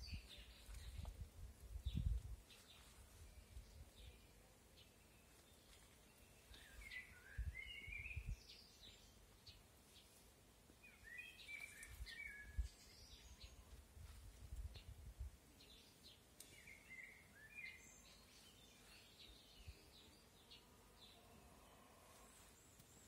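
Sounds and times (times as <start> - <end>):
low rumble on microphone: 0.0 - 2.4
songbirds chirping: 0.0 - 23.0.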